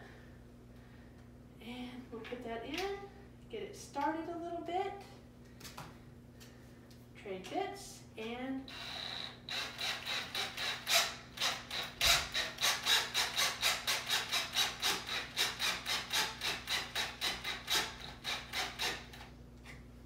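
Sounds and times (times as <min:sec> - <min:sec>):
cordless drill driving screw into wood: 0:08.7 - 0:19.3.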